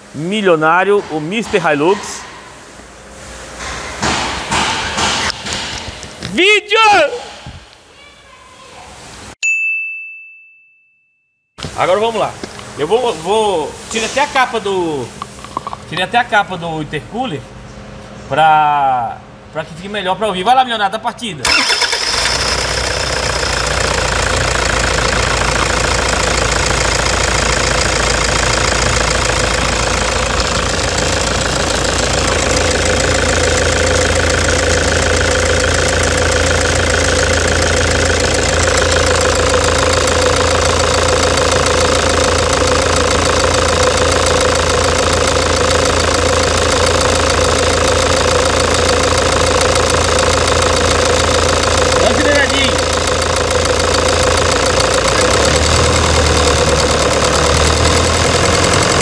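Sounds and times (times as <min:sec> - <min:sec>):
diesel engine knocking and misfiring: 0:00.0 - 0:02.4, 0:03.6 - 0:06.2, 0:21.4 - 0:59.0.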